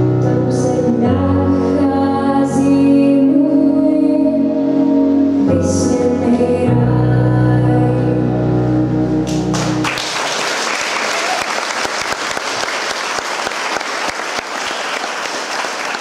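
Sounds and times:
keyboard chord: 0:00.0 - 0:10.1
audience applause: 0:09.5 - 0:16.0.

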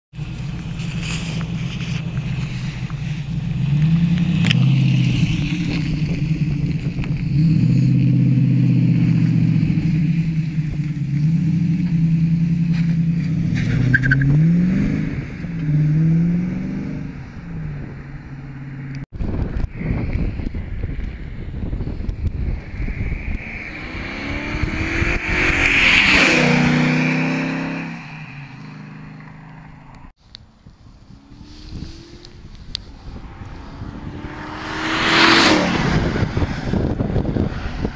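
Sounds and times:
wind noise: 0:00.2 - 0:29.1, 0:29.9 - 0:37.9
car accelerating away: 0:22.0 - 0:30.1, 0:31.0 - 0:37.9.

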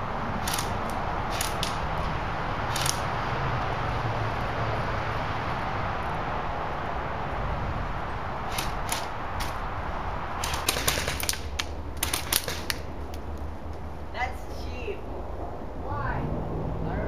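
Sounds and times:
airsoft gunshots: 0:10.4 - 0:12.8.

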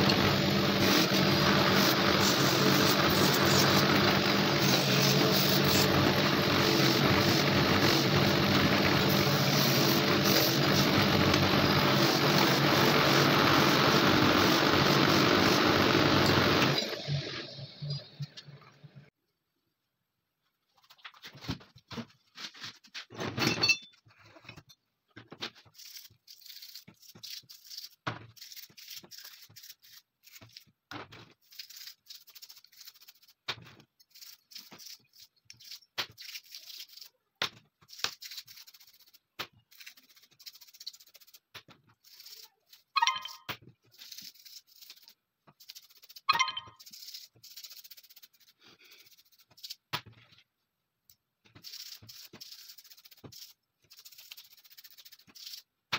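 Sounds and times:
brush scrubbing metal parts: 0:25.6 - 0:30.7, 0:31.4 - 0:37.2, 0:37.8 - 0:42.9, 0:43.8 - 0:49.9, 0:51.6 - 0:55.7.

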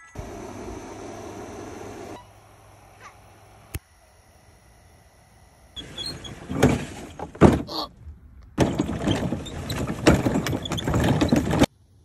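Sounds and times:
plastic toy car rattling: 0:08.6 - 0:11.7.

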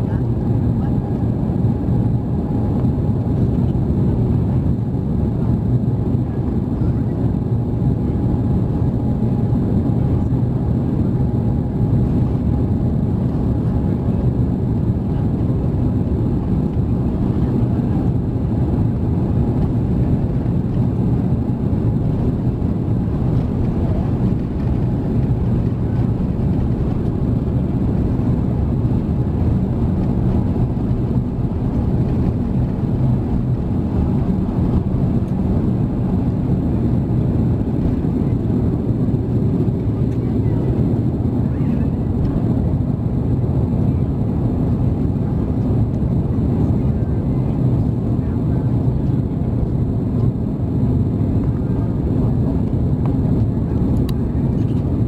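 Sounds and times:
airplane cabin rumble while taxiing: 0:00.0 - 0:55.0.

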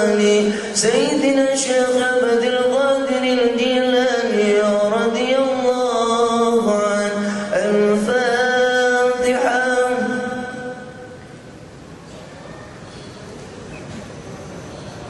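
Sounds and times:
man chanting into microphone: 0:00.0 - 0:11.2.

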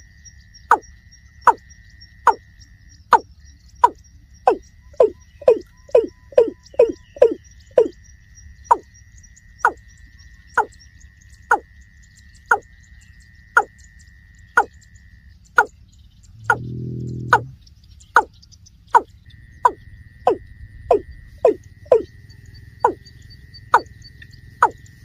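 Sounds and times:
deep low bird call: 0:03.8 - 0:08.0, 0:15.5 - 0:18.3, 0:18.9 - 0:25.0.

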